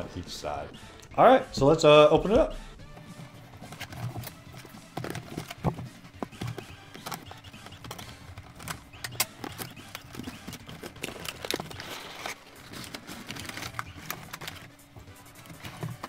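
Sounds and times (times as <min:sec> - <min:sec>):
crinkly plastic rustling: 0:03.2 - 0:16.0
cardboard and plastic clicks: 0:03.6 - 0:16.0.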